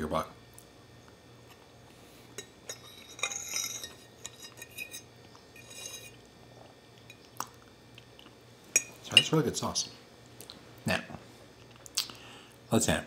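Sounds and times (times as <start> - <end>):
fork scraping a stoneware bowl: 2.3 - 6.2.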